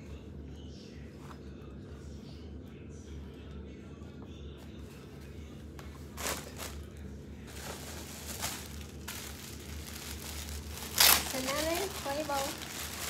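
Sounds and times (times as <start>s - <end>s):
plastic bag crinkling: 6.1s - 13.0s.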